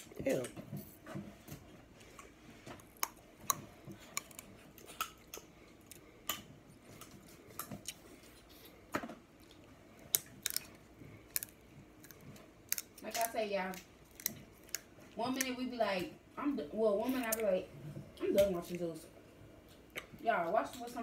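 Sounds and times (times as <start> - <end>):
chewing: 2.0 - 8.8, 9.4 - 15.6
crab shells cracking: 2.8 - 6.4, 10.0 - 15.5.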